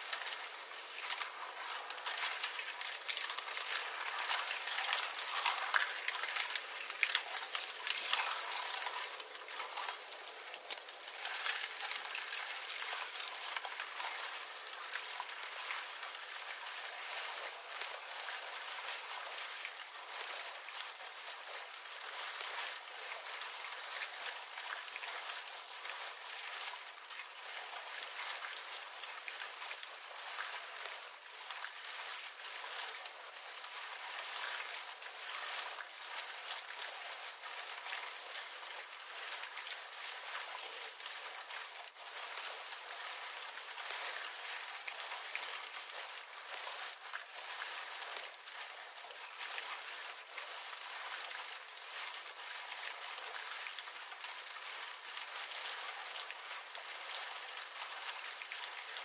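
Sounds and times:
ice crackling and clicking: 0.0s - 18.4s.

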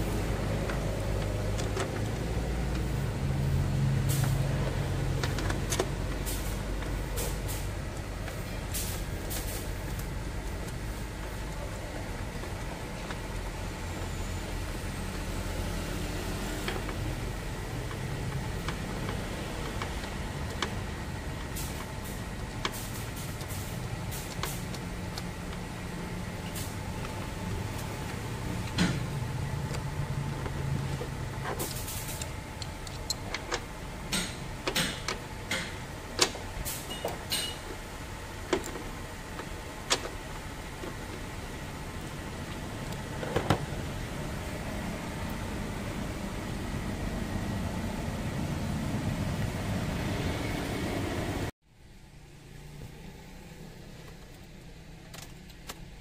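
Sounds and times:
metallic clicks and taps of tools: 31.5s - 37.6s.

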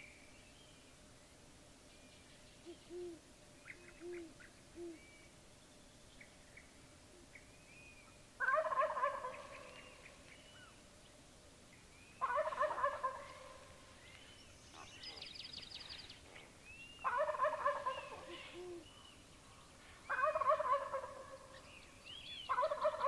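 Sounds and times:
soft low hoots: 2.6s - 5.3s, 14.7s - 21.6s
turkey gobbling: 8.4s - 9.4s, 12.2s - 13.4s, 17.1s - 18.5s, 20.1s - 21.4s
small birds chirping: 13.2s - 20.3s.

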